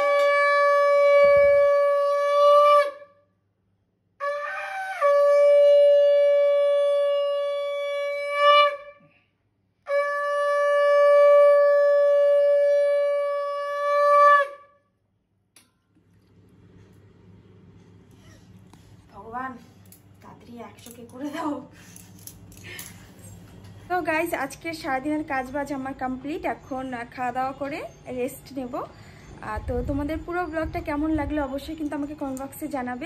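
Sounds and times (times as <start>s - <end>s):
conch shell blasts: 0.0s - 3.0s.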